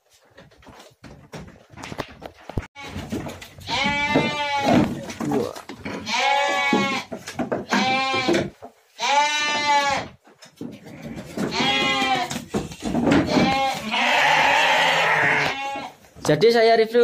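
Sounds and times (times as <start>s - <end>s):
sheep bleating: 3.6s - 4.9s, 5.9s - 7.1s, 7.7s - 10.2s, 11.4s - 12.4s, 13.1s - 16.0s.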